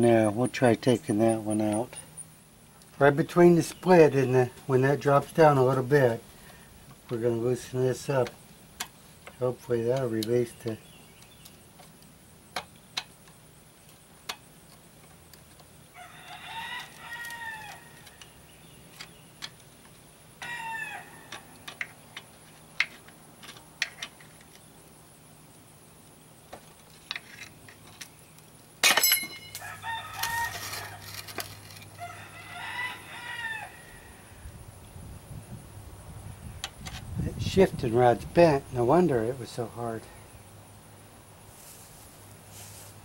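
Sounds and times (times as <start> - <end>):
rooster crowing: 15.9 - 18.1, 20.4 - 21.6, 29.5 - 31.3, 31.9 - 34.4
ringing metal clank: 28.8 - 29.6.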